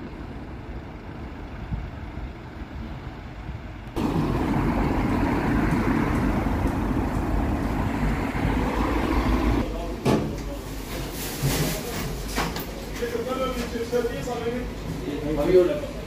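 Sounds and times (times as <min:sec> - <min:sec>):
road traffic rumble: 0:00.0 - 0:10.6.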